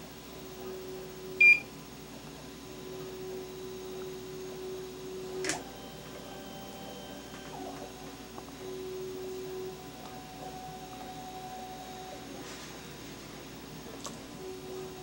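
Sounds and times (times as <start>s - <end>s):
faint hum: 0.0s - 15.0s.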